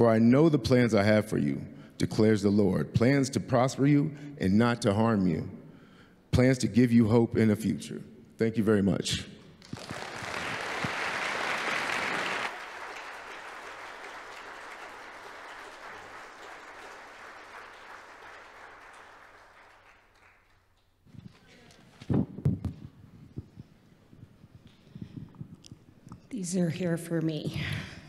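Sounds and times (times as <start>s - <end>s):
congregation applauding: 9.6s - 21.4s.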